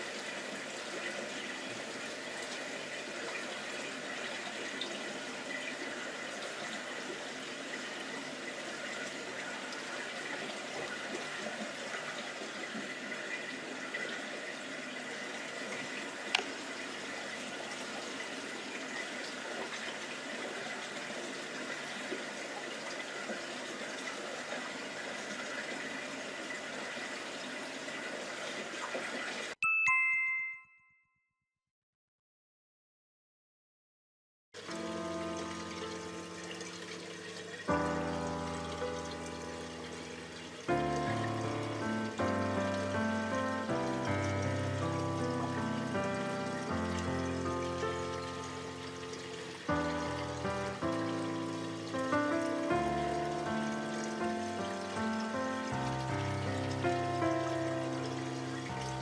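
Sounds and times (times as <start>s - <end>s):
aquarium filter bubbling: 0.0s - 29.6s, 34.6s - 59.0s
bright chime ringing: 29.6s - 31.0s.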